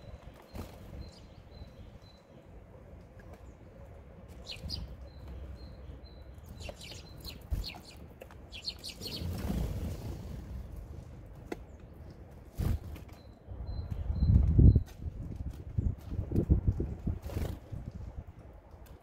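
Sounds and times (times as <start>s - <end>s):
songbirds chirping: 0.0s - 16.2s
wings fluttering: 0.3s - 1.3s, 4.3s - 5.0s, 6.4s - 10.9s, 12.5s - 13.1s, 16.8s - 18.1s.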